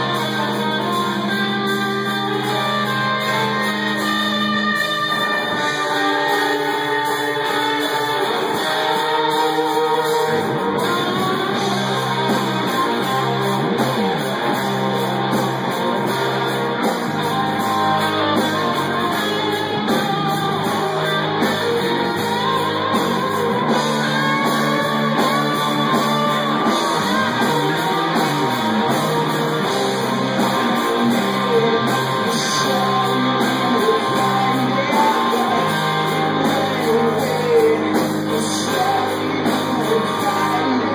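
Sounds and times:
person singing: 0.0 - 14.6, 17.3 - 40.9
drums: 0.0 - 40.9
electric guitars: 0.0 - 40.9
low bass notes: 0.0 - 40.9.

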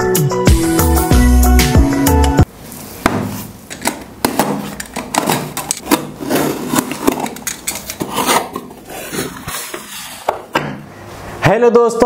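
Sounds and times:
cardboard box handled and cut: 4.3 - 7.3.

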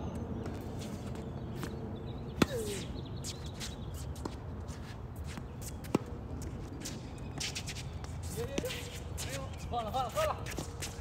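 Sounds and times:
racket hitting tennis ball: 2.4 - 2.9
shoe squeak: 2.4 - 9.9.

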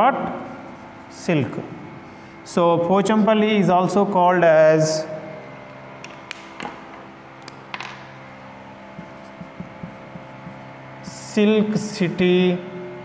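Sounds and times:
low room hum: 0.0 - 13.0
marker tapping on whiteboard: 8.9 - 10.7.

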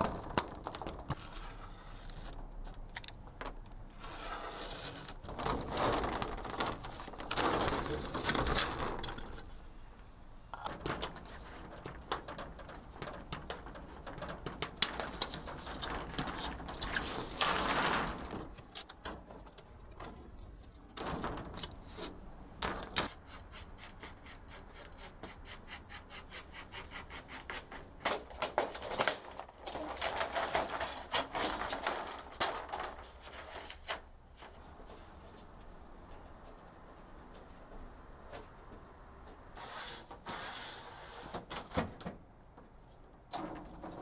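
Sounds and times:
blade scraping along sheet: 4.0 - 5.2
scraping at old caulking: 22.8 - 34.6.

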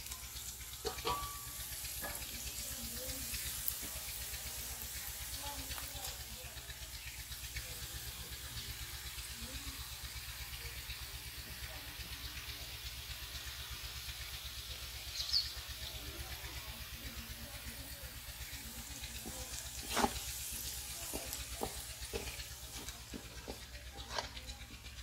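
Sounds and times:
onions sizzling in oil: 0.0 - 25.0
wooden spatula scraping a pan: 19.2 - 24.4.

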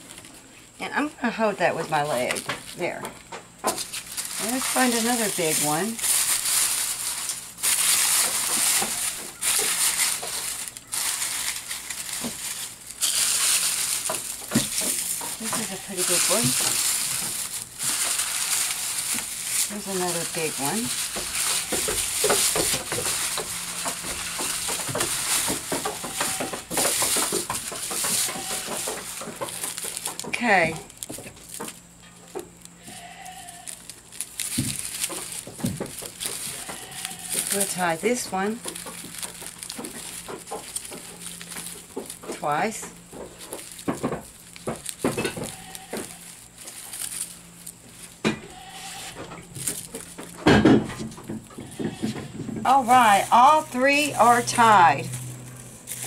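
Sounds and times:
onion skins rustling in basket: 0.0 - 56.0
goat bleating: 25.8 - 26.7, 28.0 - 28.9, 32.8 - 33.8, 36.5 - 37.5, 45.4 - 46.3, 48.4 - 49.2, 51.6 - 52.3.

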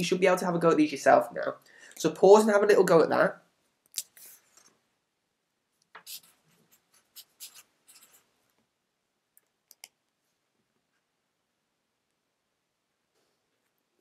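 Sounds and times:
pen scratching on paper: 6.0 - 8.3.

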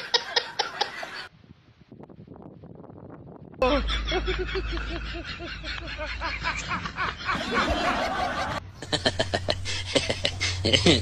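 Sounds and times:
person snickering laughter: 3.6 - 11.0.

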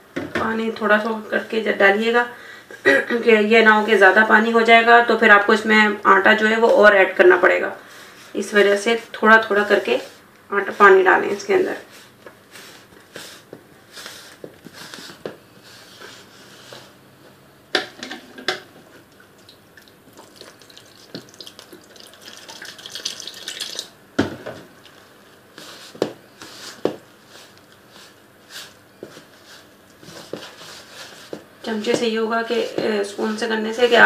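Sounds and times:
water poured into flour: 19.4 - 23.9.

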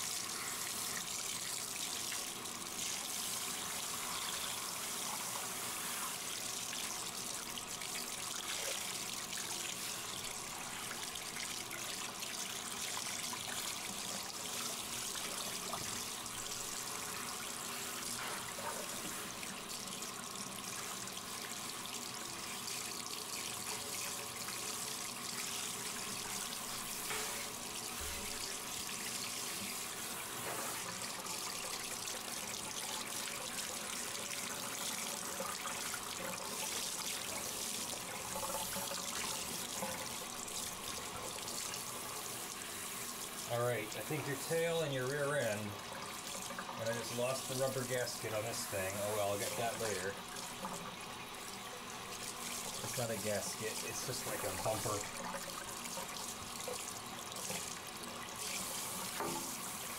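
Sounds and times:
water spraying from shower head: 41.4 - 45.6, 46.8 - 50.6, 52.1 - 59.9.

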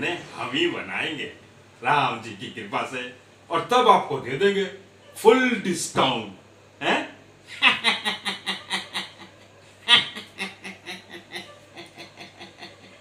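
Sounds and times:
man laughing: 7.5 - 13.0.

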